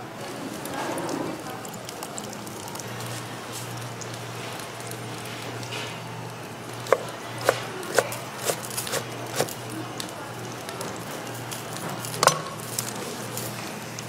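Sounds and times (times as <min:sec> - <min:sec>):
knife chopping on wooden board: 0:06.9 - 0:09.5.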